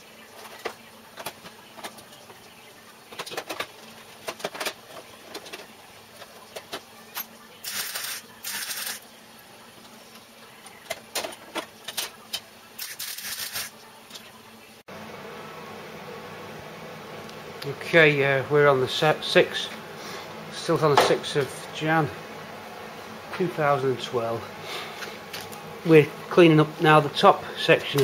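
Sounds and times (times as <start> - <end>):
welder crackling zaps: 7.2 - 9.1, 11.7 - 14.3.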